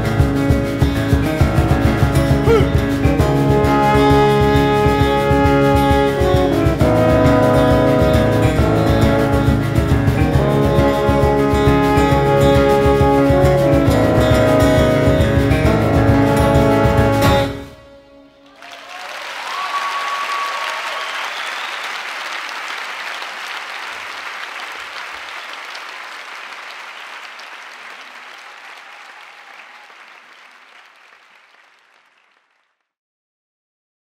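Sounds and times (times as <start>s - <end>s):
audience applauding: 18.4s - 32.8s.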